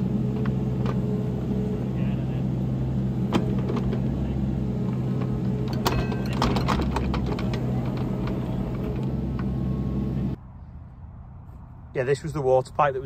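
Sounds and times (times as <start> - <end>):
excavator diesel engine running: 0.0 - 10.4
hydraulic whine: 0.0 - 10.4.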